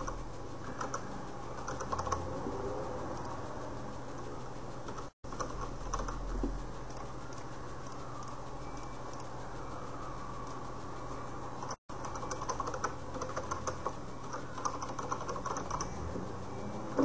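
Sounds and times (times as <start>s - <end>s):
keyboard typing: 0.0s - 2.3s, 4.9s - 9.4s, 11.6s - 16.0s
low electrical hum: 0.0s - 17.0s.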